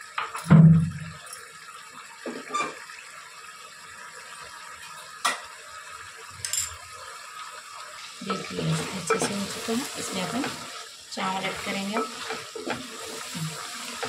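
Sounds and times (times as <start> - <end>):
cooking pot hissing: 5.6 - 14.0.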